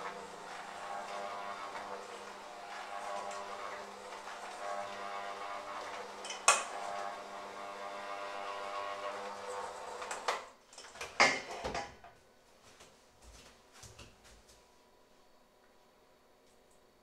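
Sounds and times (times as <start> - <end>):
electric mixer running: 0.0 - 10.5.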